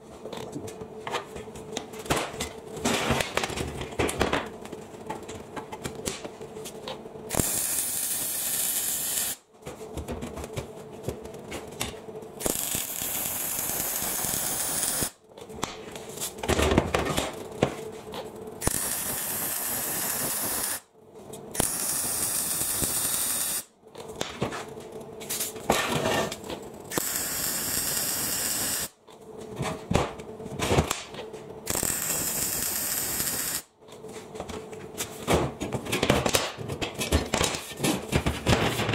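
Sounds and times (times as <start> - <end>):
welding arc crackling hiss: 7.3 - 9.4, 12.4 - 15.2, 18.6 - 20.9, 21.5 - 23.7, 26.8 - 29.0, 31.6 - 33.7.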